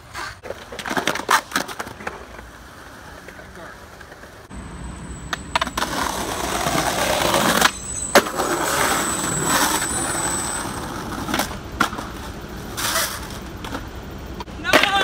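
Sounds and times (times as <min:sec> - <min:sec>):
skateboard clack: 0:00.0 - 0:04.5, 0:05.2 - 0:15.0
skateboard wheels rolling on stone: 0:00.0 - 0:15.0.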